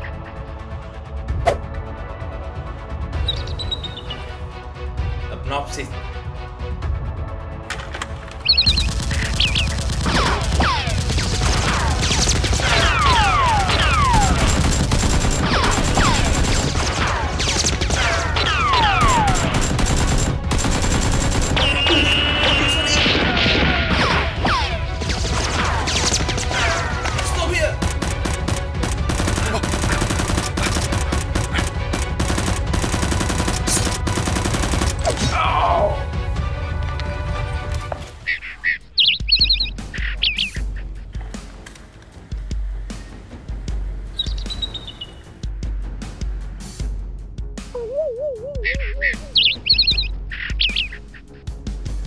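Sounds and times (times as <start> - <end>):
background music: 0.0 - 52.0
rapid gunfire sound effects: 8.6 - 35.2
falling whistles: 21.6 - 22.9.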